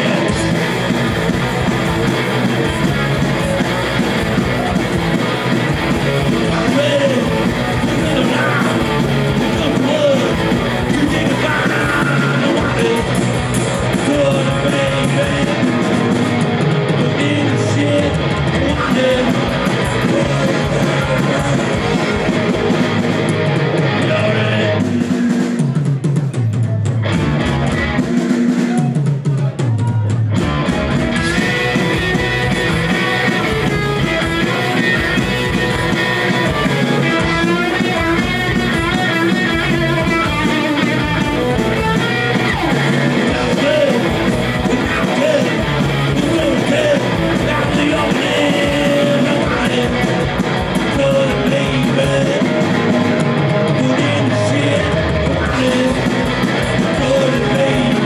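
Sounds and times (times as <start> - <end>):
person singing: 0.0 - 0.9, 6.0 - 22.9, 23.7 - 25.8, 31.1 - 58.0
electric guitar: 0.0 - 25.7, 26.7 - 28.9, 30.1 - 58.0
drum kit: 0.0 - 58.0.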